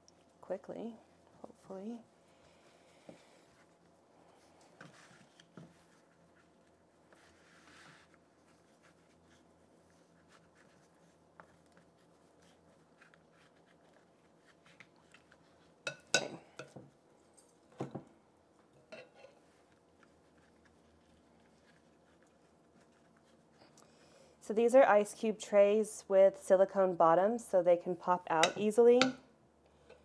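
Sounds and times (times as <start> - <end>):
clinks and scrapes from glass bowl: 18.9 - 19.4.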